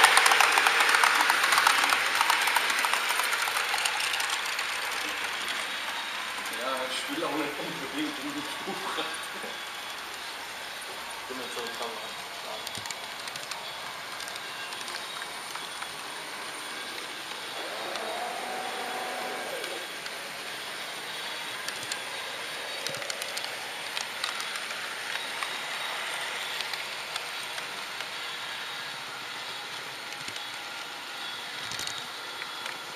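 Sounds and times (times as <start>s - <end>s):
light clicks of train: 0.0s - 6.6s, 9.1s - 16.0s, 21.6s - 22.1s, 22.7s - 29.1s, 29.7s - 32.9s
model train whirring: 0.0s - 32.9s.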